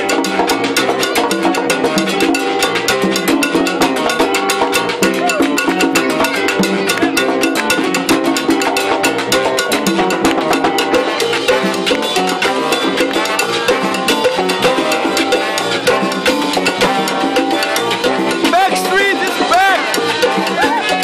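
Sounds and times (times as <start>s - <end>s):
congas: 0.0s - 21.0s
salsa band playing: 0.0s - 21.0s.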